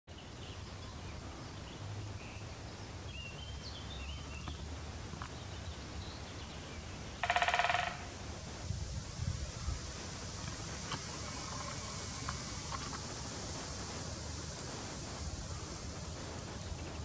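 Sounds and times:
songbird chirps: 0.1 - 8.2, 9.2 - 17.0
woodpecker drumming on wood: 7.2 - 8.4, 10.1 - 17.0.

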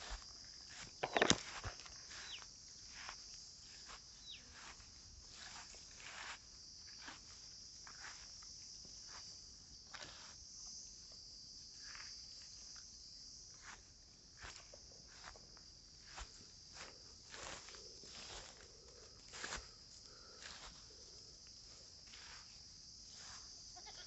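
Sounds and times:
high-pitched insect chorus: 0.0 - 24.0.

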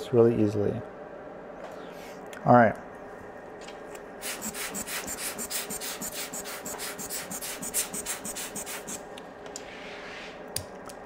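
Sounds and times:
foam swab scrubbing circuit board: 4.3 - 9.0.

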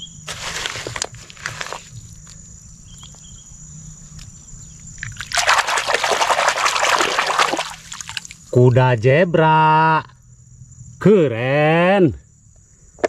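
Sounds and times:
hand scraping wet gravel: 0.2 - 2.4, 5.0 - 8.4
water splashing and sloshing: 4.8 - 8.5.

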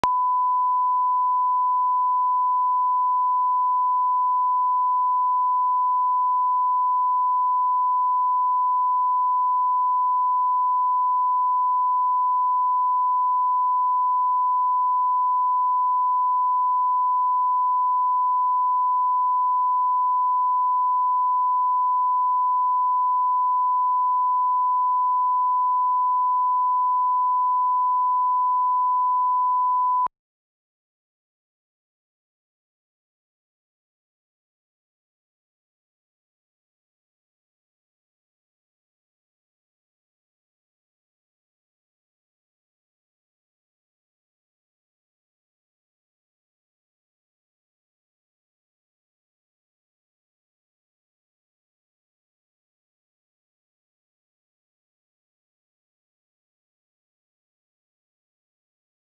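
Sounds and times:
steady sine reference tone: 0.0 - 30.1.

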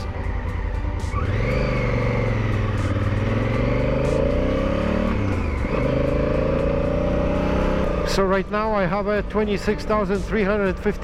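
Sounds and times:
motorcycle engine accelerating: 0.6 - 8.7.

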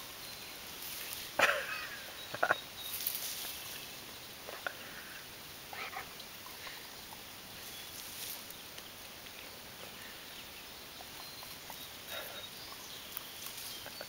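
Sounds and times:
leaves rustling: 0.0 - 14.0.

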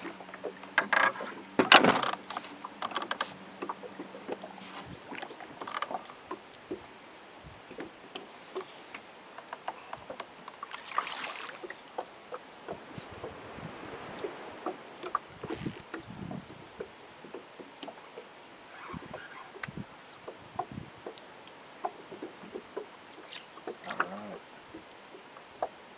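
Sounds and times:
light ticks: 16.8 - 18.3, 19.6 - 22.9.

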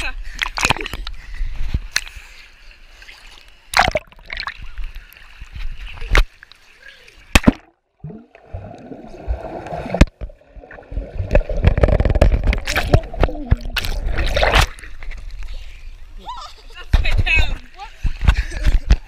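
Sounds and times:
pool water splashing: 3.0 - 15.4
sharp clicks and knocks: 11.3 - 13.0.

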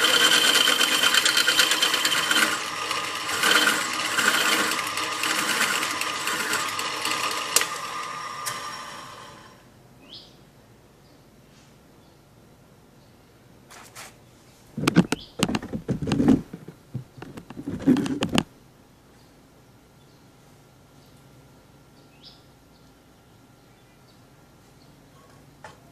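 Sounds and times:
drill press drilling into metal: 0.0 - 9.6.

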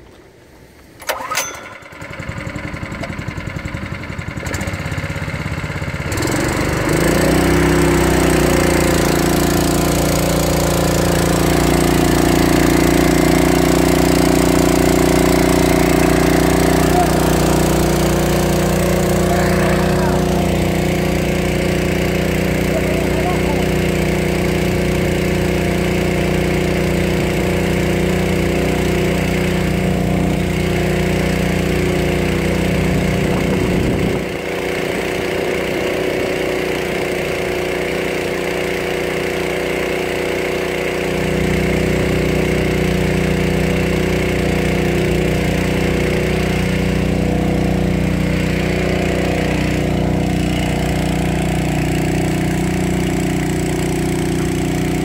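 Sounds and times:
engine running steadily: 1.0 - 55.0.

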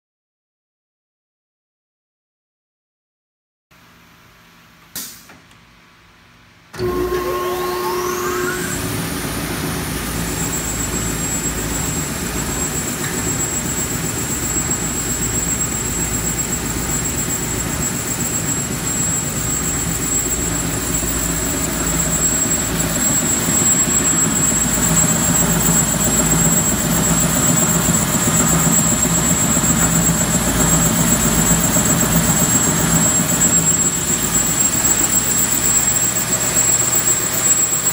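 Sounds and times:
belt sander motor whine: 6.8 - 37.9.

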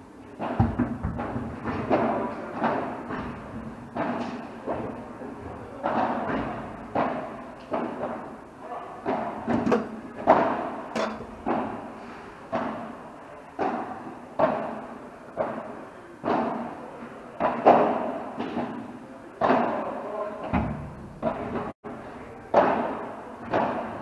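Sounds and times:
rackets hitting ball: 0.3 - 24.0
ball bouncing off walls: 0.4 - 5.1, 5.8 - 8.4, 9.0 - 11.9, 19.4 - 21.8.

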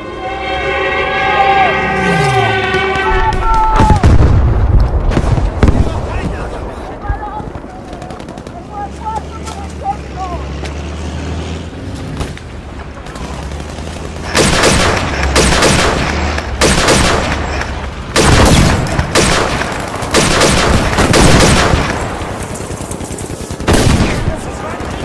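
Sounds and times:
airsoft guns firing full-auto bursts: 13.2 - 17.4, 18.2 - 25.0.

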